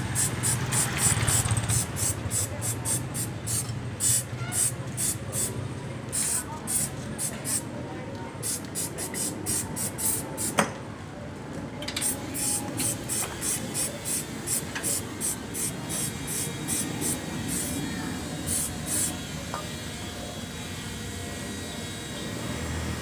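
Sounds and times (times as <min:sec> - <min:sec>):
aerosol spray hissing: 0:00.0 - 0:05.5, 0:06.2 - 0:07.7, 0:08.4 - 0:10.6, 0:12.0 - 0:17.8.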